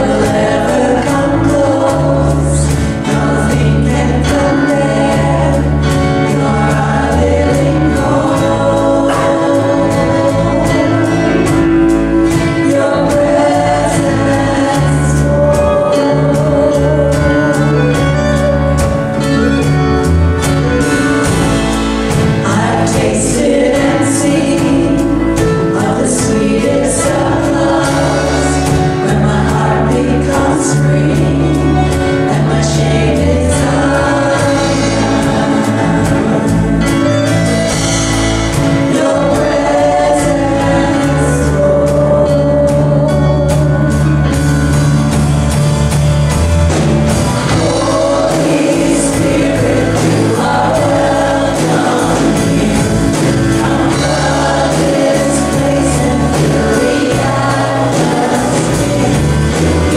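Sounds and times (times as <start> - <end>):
group singing worship music: 0.0 - 59.9.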